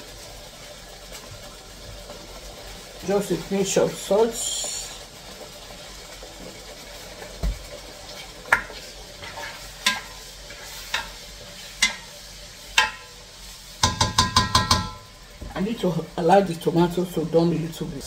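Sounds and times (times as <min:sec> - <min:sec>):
food sizzling in a pot: 0:00.0 - 0:18.0
spoon knocking against pot: 0:13.8 - 0:15.1.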